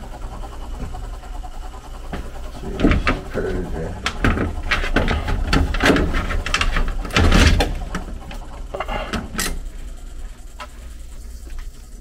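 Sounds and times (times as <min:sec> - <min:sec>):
wiring and metal conduit handling: 0:04.0 - 0:09.6.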